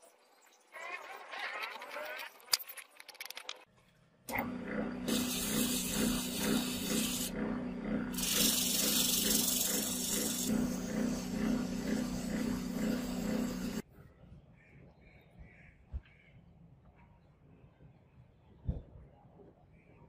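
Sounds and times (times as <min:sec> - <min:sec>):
lathe humming: 0:04.3 - 0:13.8
sandpaper hissing on spinning disc: 0:05.1 - 0:07.3, 0:08.2 - 0:13.8.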